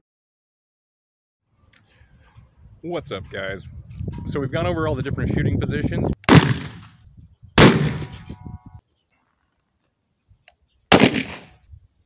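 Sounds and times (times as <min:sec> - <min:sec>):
rifle shots with echo: 0:06.3 - 0:07.0, 0:07.6 - 0:08.3, 0:10.9 - 0:11.6.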